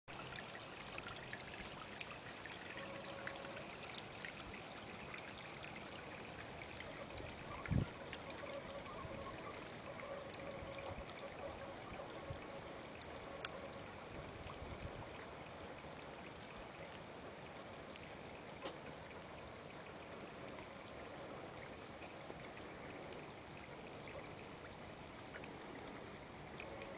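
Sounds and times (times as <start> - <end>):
water trickling and splashing: 0.1 - 26.9.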